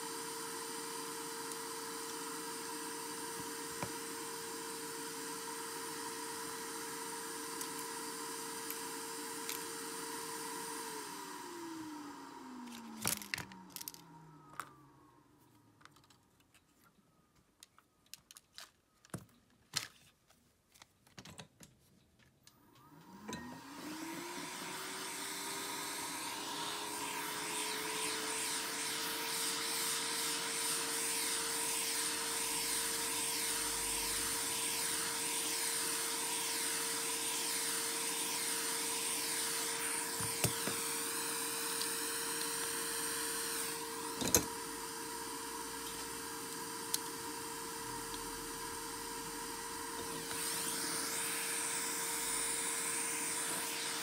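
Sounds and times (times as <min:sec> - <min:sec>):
small electric motor whining: 0:22.8 - 0:54.0.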